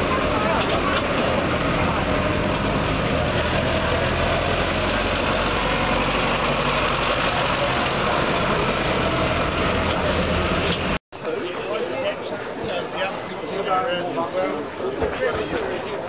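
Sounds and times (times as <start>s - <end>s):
tractor engine idling: 0.0s - 11.0s.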